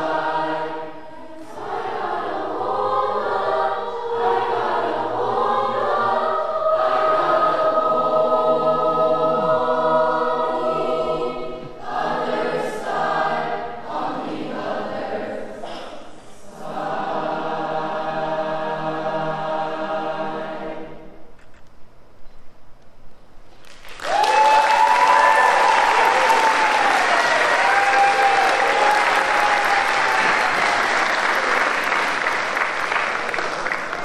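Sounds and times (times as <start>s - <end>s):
choir singing in harmony: 0.0s - 21.3s, 24.8s - 33.9s
audience applauding: 23.6s - 34.0s
person whooping: 24.0s - 30.6s.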